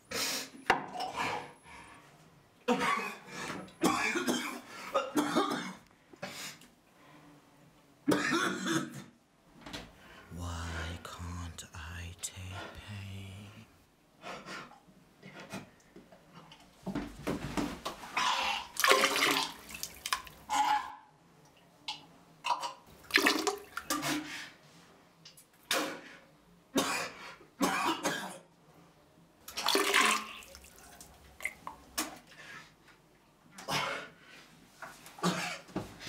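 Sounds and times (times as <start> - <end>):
man retching and vomiting: 18.2 - 21.0.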